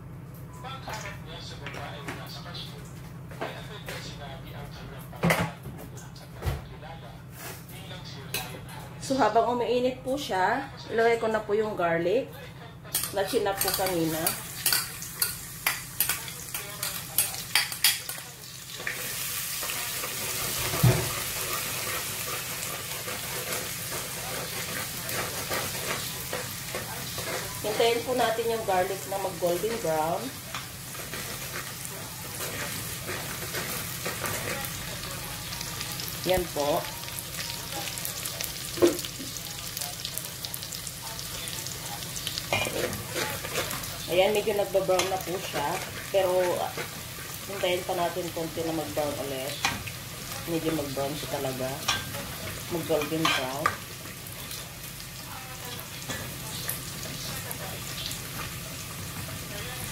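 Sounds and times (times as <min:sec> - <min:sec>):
garlic sizzling in oil: 0:13.0 - 0:59.9.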